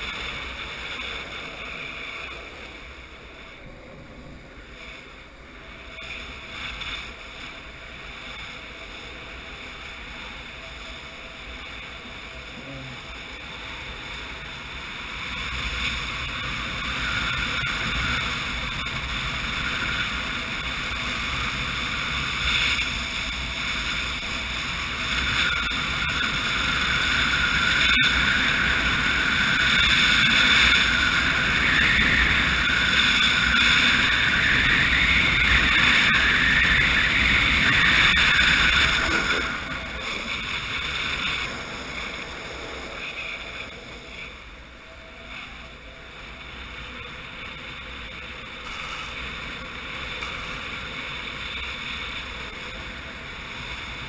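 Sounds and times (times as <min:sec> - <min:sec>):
skateboard wheels rolling on asphalt: 0:00.0 - 0:54.0
wind rushing over microphone: 0:00.0 - 0:54.0.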